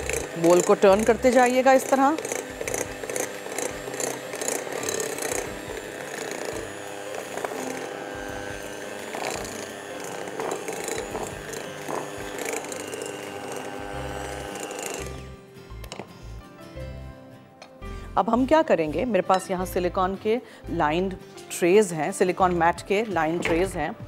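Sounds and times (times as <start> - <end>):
electric hand mixer running: 0.0 - 15.4.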